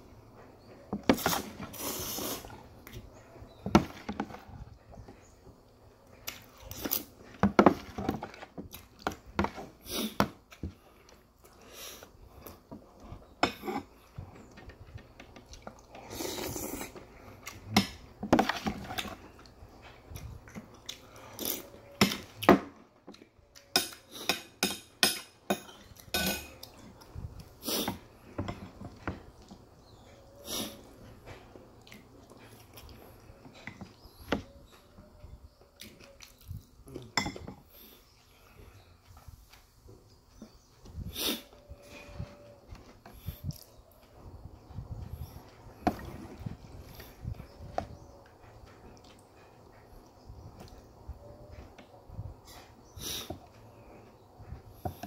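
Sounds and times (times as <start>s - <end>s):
spoon and fork clinking on bowl: 23.8s - 26.7s.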